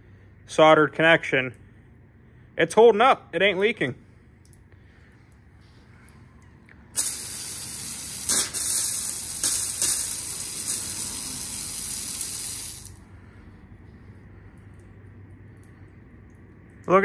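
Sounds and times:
water spraying from pipe: 7.0s - 13.0s.

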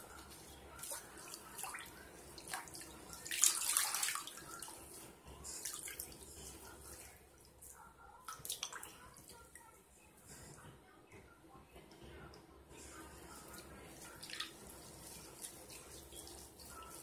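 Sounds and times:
wet squishing of lather: 0.0s - 6.6s, 13.4s - 17.0s.

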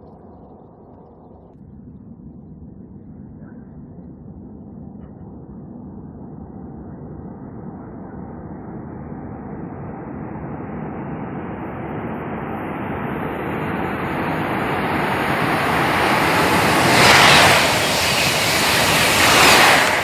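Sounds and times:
high-speed train passing: 13.1s - 20.0s.

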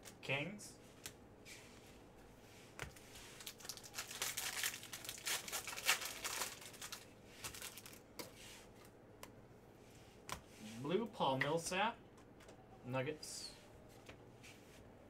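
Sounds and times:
foil wrapper tearing and crinkling: 3.4s - 8.0s.

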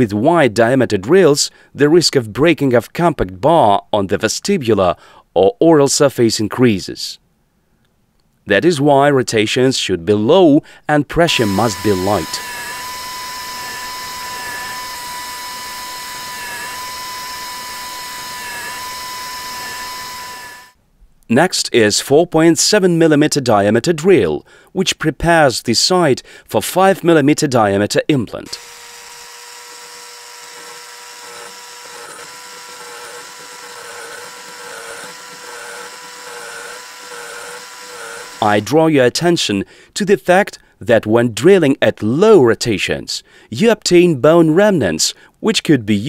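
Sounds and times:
dental drill whining: 11.2s - 20.8s, 28.4s - 38.8s
drill cutting hiss: 11.3s - 20.8s, 28.5s - 38.7s.

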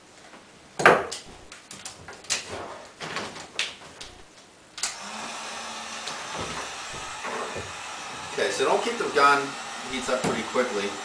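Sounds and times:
heat gun hissing and humming: 4.8s - 11.0s.

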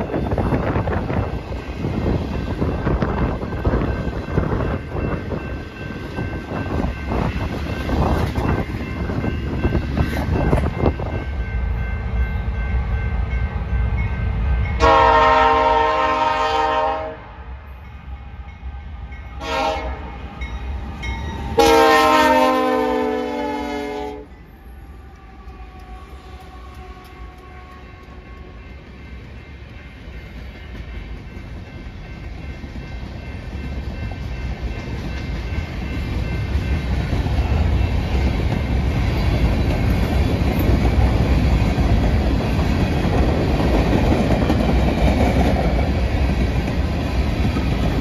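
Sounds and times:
freight train rumbling: 0.0s - 48.0s
locomotive air horn blasts: 14.8s - 17.4s, 19.4s - 20.2s, 21.6s - 24.3s.

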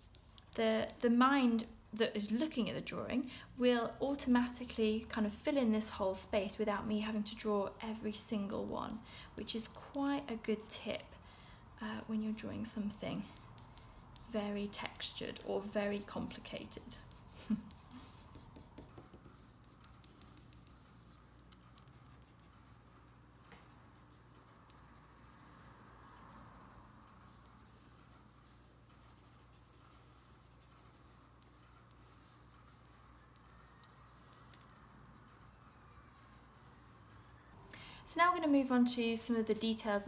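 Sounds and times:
pencil scratching on paper: 0.0s - 1.1s, 11.9s - 37.4s.

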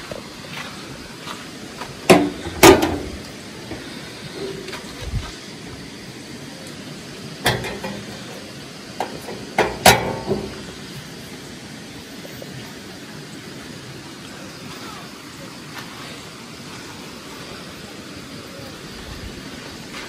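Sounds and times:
metal camping stove clanking: 2.0s - 5.1s, 7.4s - 11.2s.

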